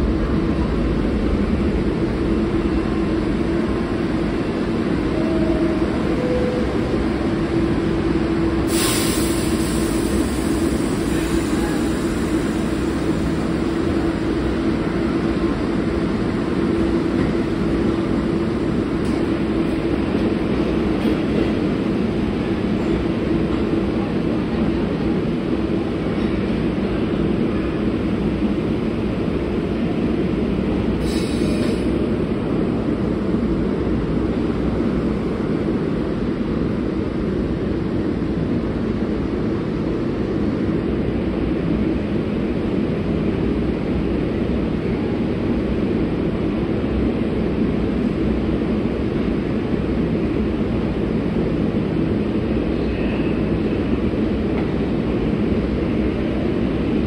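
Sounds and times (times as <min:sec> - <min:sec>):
subway train rumbling: 0:00.0 - 0:57.0.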